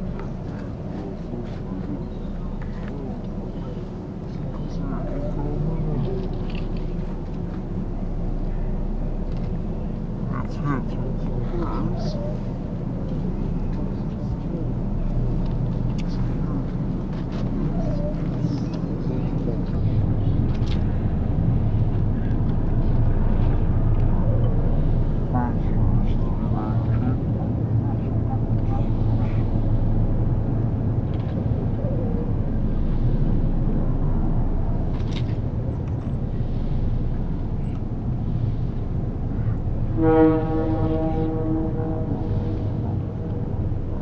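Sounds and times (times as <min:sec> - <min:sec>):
faint crowd chatter: 0:00.0 - 0:30.5
diesel train rumbling: 0:00.0 - 0:44.0
train horn: 0:39.9 - 0:43.4.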